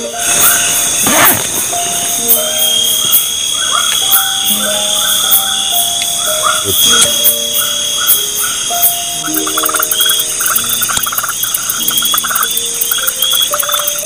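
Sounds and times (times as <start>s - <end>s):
frogs calling: 0.0s - 14.0s
short repeating chirps: 4.1s - 14.0s.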